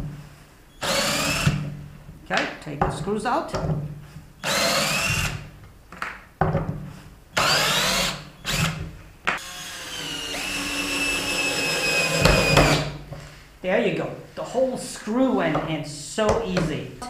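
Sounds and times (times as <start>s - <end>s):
cordless drill whining: 0.8s - 1.6s, 4.4s - 5.4s, 7.4s - 8.8s, 9.4s - 13.0s.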